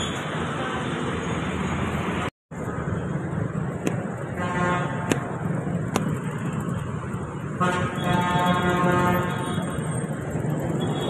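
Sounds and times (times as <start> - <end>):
traffic on wet street: 0.0 - 11.0
vehicle horn: 4.4 - 5.0, 7.6 - 9.8.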